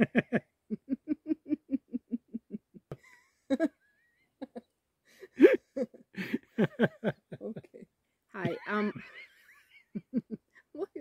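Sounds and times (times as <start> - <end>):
man and woman laughing: 0.0 - 3.8, 4.4 - 4.6, 5.2 - 7.8, 8.4 - 10.4.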